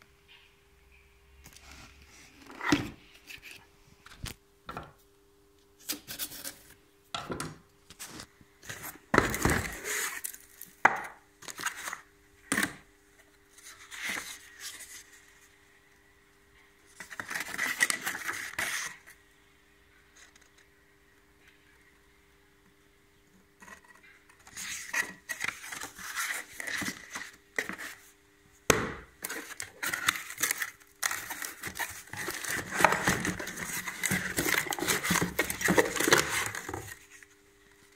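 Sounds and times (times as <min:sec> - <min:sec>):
cardboard and paper rustling: 0:13.5 - 0:15.4, 0:16.9 - 0:19.2, 0:23.6 - 0:28.1, 0:29.2 - 0:37.9.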